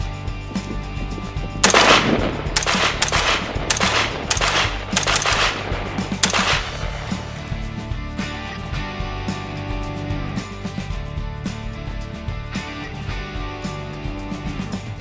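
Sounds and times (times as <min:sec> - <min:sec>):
background music with low notes: 0:00.0 - 0:15.0
rifle shots: 0:01.6 - 0:07.7.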